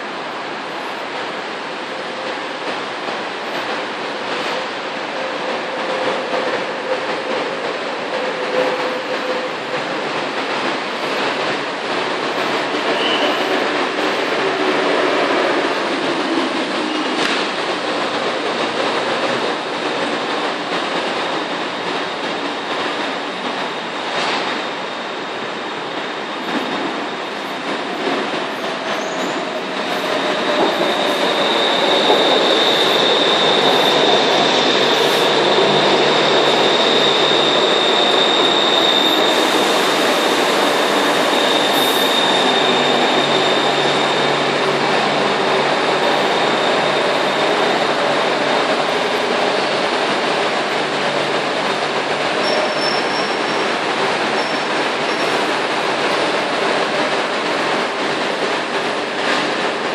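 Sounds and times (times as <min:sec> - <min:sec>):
train rumble: 0:00.0 - 0:59.9
high wheel squeal: 0:12.6 - 0:15.9, 0:26.2 - 0:50.6, 0:51.6 - 0:55.5.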